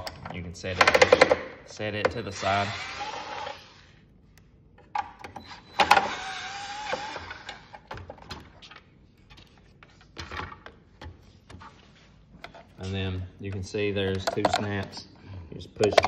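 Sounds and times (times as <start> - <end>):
small electric motor whirring: 2.4 - 3.9, 5.8 - 7.6
tools and plastic parts tapping: 12.4 - 15.1, 15.8 - 16.0.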